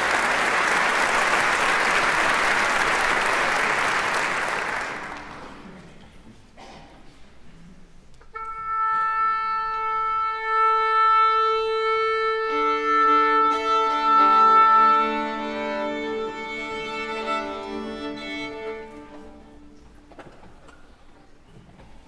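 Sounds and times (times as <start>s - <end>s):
oboe sounding tuning note: 8.3s - 15.4s.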